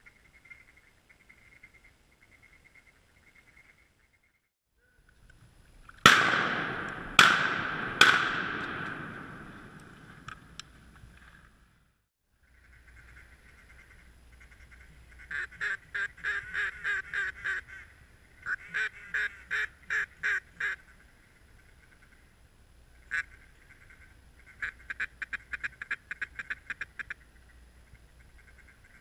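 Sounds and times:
duck quacking: 12.7s - 17.8s, 18.5s - 20.8s.

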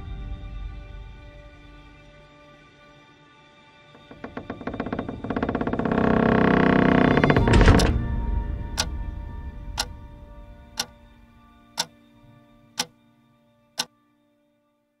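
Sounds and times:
clock ticking: 10.8s - 11.0s.

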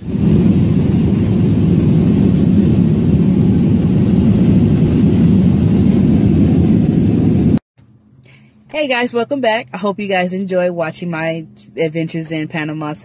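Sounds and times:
jet engines rumbling: 0.0s - 7.6s.

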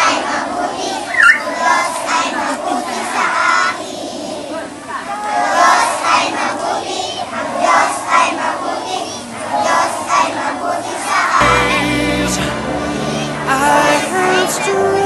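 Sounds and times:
children singing in unison: 0.0s - 15.0s
music with steady bass line: 11.4s - 15.0s.

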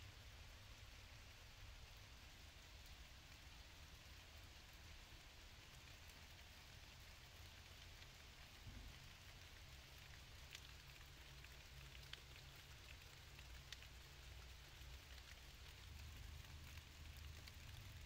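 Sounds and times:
faint steady hiss: 0.0s - 18.0s
soft ticks: 5.6s - 18.0s.

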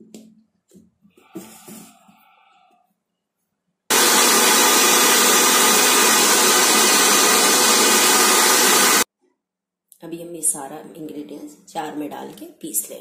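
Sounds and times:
electric mixer grinder running: 3.9s - 9.1s.

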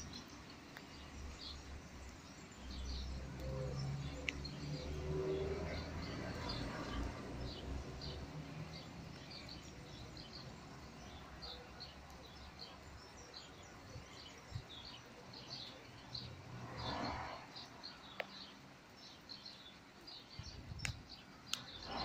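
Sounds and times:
small birds chirping: 0.0s - 22.0s
sharp tick: 20.8s - 21.7s.

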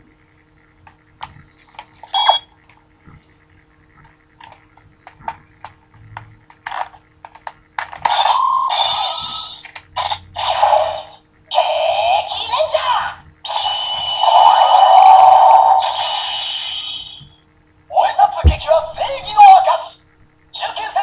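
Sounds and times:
toy electronic sound effects: 8.0s - 12.5s, 13.5s - 17.2s.

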